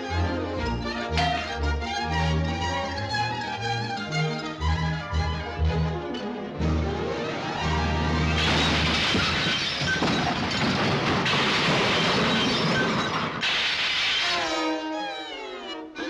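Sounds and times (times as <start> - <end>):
cartoon orchestral music: 0.0 - 8.9, 14.2 - 16.0
loud crashing sound effect: 8.3 - 14.4.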